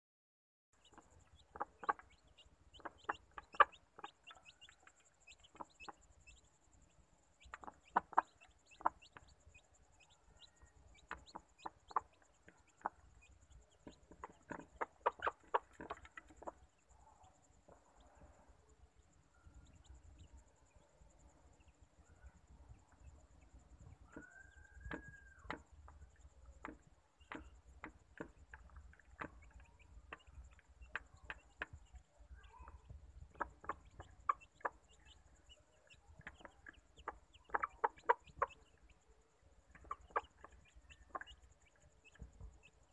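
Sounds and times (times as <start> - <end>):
hen clucking: 0.8 - 6.5, 7.4 - 16.9, 24.0 - 38.9, 39.7 - 42.7
chicks peeping softly: 0.8 - 42.9.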